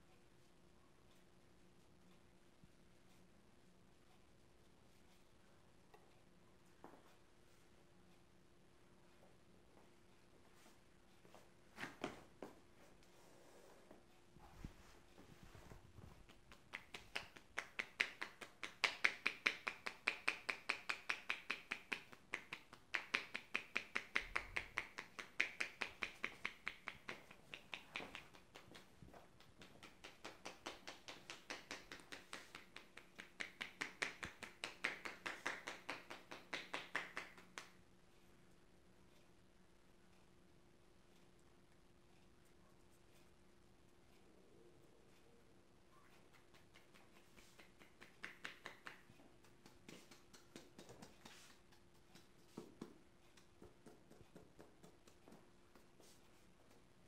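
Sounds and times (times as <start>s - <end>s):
hands tapping on scalp: 14.7s - 37.8s, 46.2s - 57.0s.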